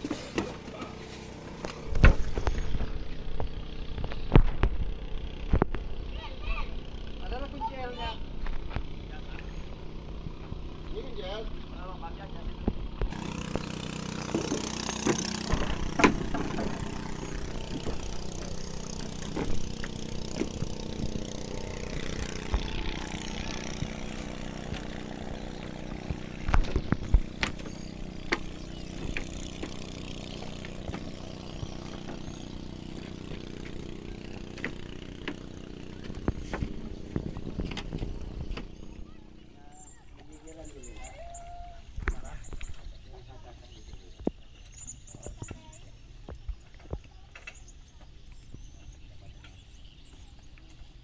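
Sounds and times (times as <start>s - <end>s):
engine idling: 0.0s - 44.0s
knocks and clatter: 12.6s - 32.3s.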